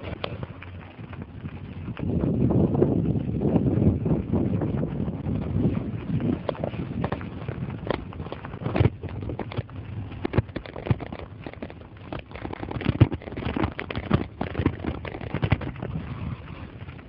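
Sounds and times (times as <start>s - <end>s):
bicycle rattling over gravel: 0.0s - 17.0s.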